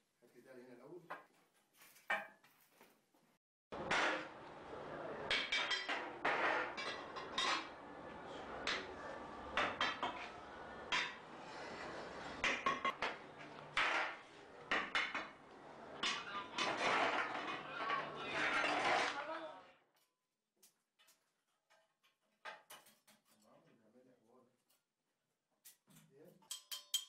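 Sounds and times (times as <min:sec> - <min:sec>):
metal flasks and tools clanking: 0:26.4 - 0:27.0.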